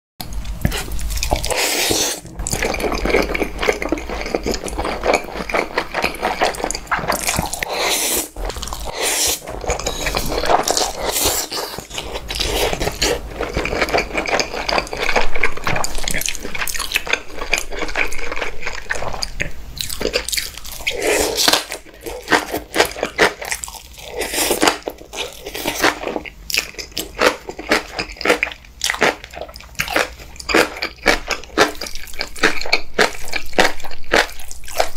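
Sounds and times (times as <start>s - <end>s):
chewing with crunchy bites: 0.2s - 34.9s
noodles slurping: 0.6s - 19.3s.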